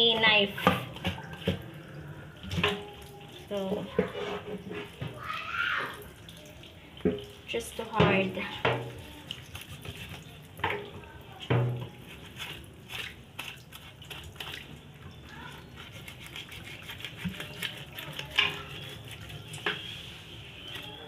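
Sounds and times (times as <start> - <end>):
knife cutting raw meat: 15.7 - 19.4.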